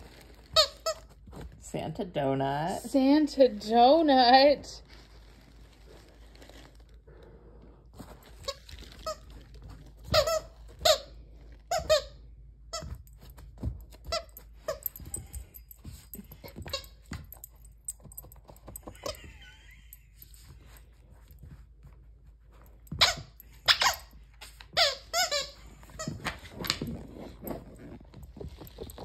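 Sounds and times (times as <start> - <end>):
squeaky toy squeaking: 10.1 - 11.1, 22.9 - 26.3.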